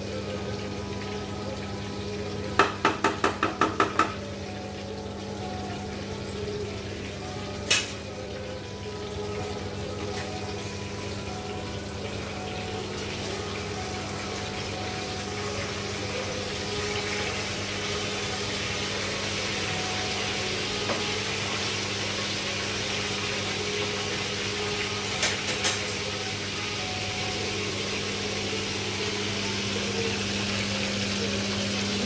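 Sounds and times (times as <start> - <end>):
fish sizzling in oil: 0.0 - 32.0.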